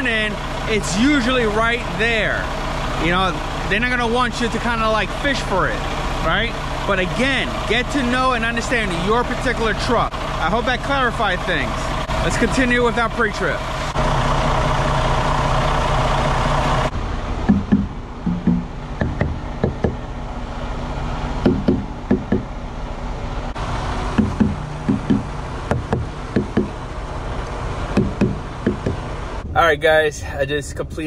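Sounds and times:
diesel engine idling: 0:00.0 - 0:31.0
short knocks: 0:17.4 - 0:20.0, 0:21.4 - 0:22.5, 0:24.1 - 0:26.8, 0:27.9 - 0:29.1.

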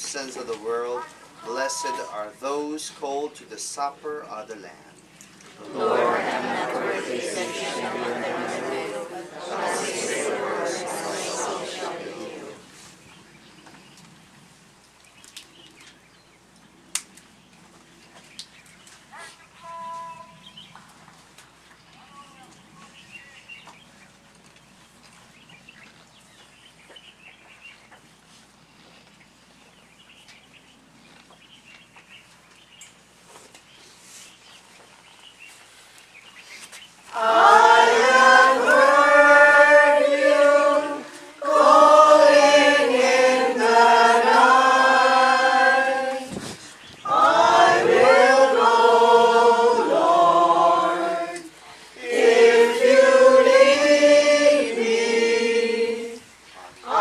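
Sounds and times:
group singing a hymn: 0:05.5 - 0:12.9, 0:37.1 - 0:57.0.

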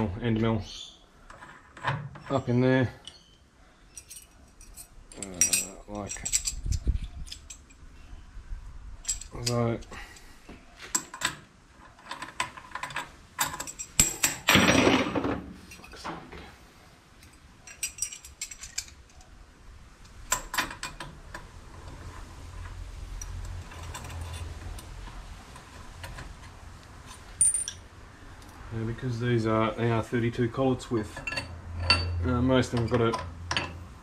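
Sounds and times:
metal tools clinking and clattering: 0:01.3 - 0:07.8, 0:09.0 - 0:10.3, 0:10.9 - 0:16.1, 0:17.2 - 0:19.3, 0:27.0 - 0:27.8, 0:31.0 - 0:33.8.

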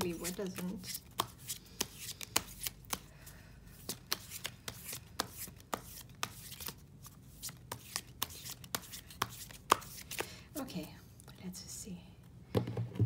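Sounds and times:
cards being shuffled: 0:00.0 - 0:10.4.

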